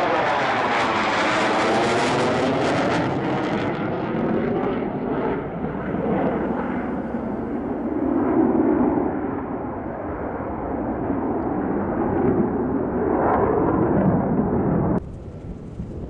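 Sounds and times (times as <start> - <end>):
jet engine passing overhead: 0.0 - 16.0.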